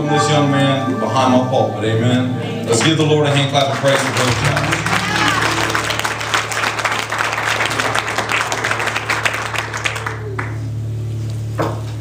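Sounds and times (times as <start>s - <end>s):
steady low tone: 0.0s - 11.2s
congregation applauding: 2.8s - 10.8s.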